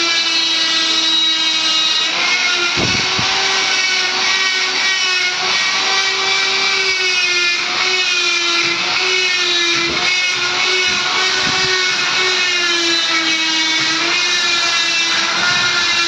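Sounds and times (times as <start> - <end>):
electric grinder whining: 0.0 - 16.0.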